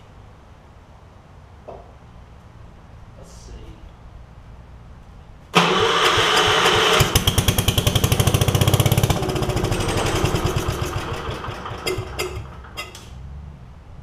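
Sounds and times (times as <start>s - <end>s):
engine cranking and chugging: 5.6s - 13.2s.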